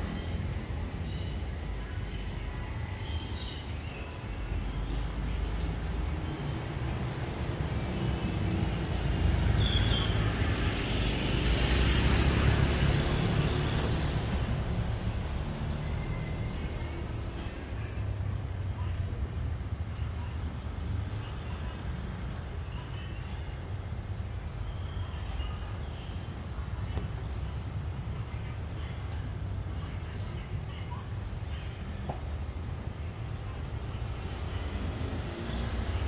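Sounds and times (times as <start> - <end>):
street traffic rumbling: 0.0 - 36.0
vehicle passing: 5.9 - 17.4, 34.1 - 36.0.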